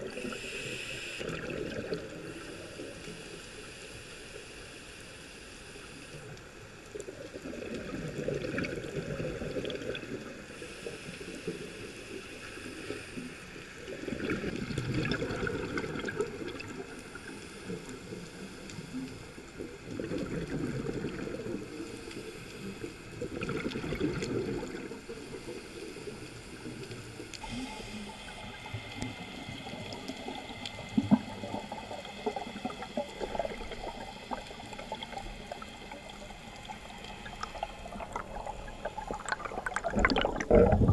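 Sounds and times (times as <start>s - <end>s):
regulator hiss: 0.0s - 1.2s, 25.1s - 39.4s
bubbles rushing out: 1.2s - 2.2s, 14.0s - 16.8s, 19.9s - 21.5s, 23.3s - 24.9s, 37.2s - 40.9s.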